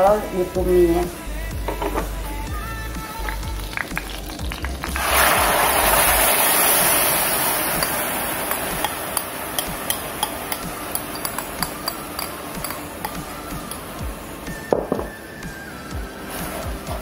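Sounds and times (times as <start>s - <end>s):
oil spitting and popping: 1.6s - 15.1s
paste sizzling in hot oil: 2.4s - 17.0s.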